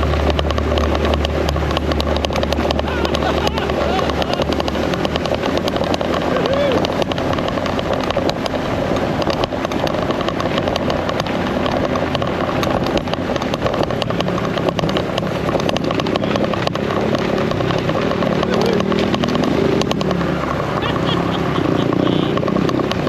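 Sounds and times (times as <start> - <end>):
small motorcycle engine running: 0.0 - 23.0
wheels rattling over cobbles: 0.0 - 23.0.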